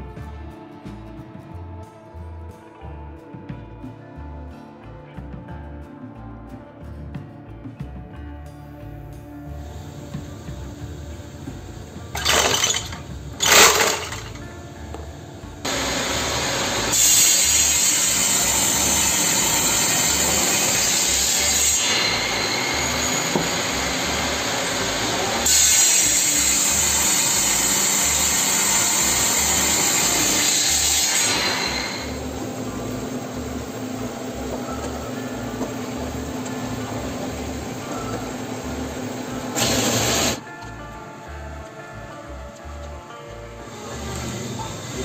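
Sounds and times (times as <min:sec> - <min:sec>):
saw blade humming: 0:12.0 - 0:14.4, 0:15.7 - 0:40.4
table saw cutting wood: 0:12.2 - 0:14.4, 0:15.7 - 0:40.4.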